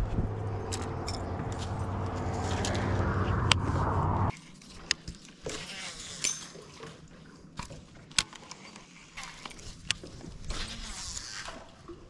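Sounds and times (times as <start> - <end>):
steady motor hum: 0.0 - 4.3.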